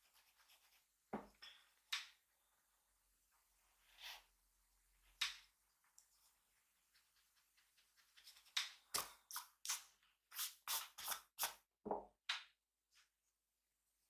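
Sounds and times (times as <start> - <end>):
drawing tool scratching paper: 6.9 - 8.8.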